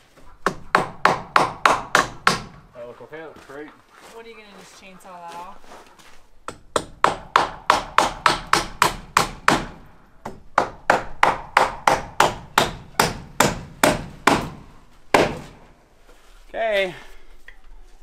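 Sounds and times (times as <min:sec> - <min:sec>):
hammer nailing wooden boards: 0:00.4 - 0:02.6, 0:06.5 - 0:15.6.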